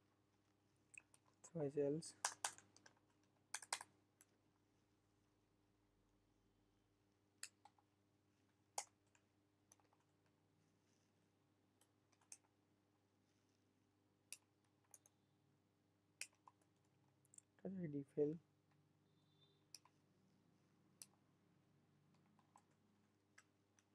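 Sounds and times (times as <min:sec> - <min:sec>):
computer keyboard keystrokes: 0:02.2 - 0:03.9.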